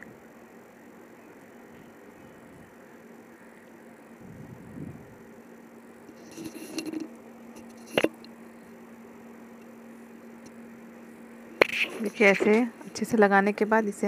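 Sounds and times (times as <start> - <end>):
faint steady hum: 0.0 - 14.0
sharp click: 11.6 - 12.6.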